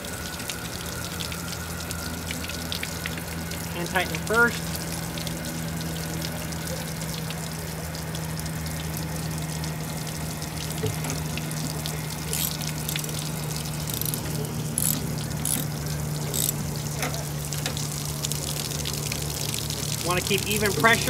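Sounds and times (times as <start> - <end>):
water hissing from pipe leak: 0.0 - 21.0
socket ratchet clicking: 12.3 - 13.1, 13.8 - 15.7, 16.3 - 16.6.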